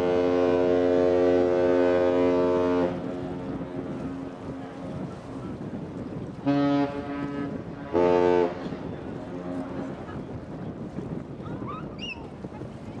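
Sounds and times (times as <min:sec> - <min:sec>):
ship's horn blasts: 0:00.0 - 0:05.7, 0:06.4 - 0:10.3
wind on microphone: 0:00.0 - 0:13.0.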